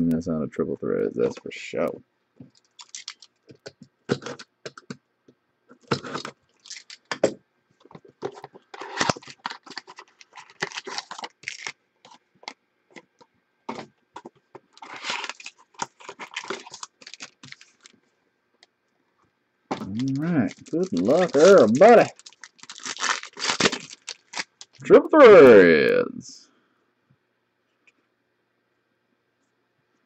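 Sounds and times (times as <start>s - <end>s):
foil pack rustling: 2.6s - 3.4s, 5.8s - 7.1s, 8.2s - 12.2s, 14.7s - 18.0s, 19.8s - 24.8s.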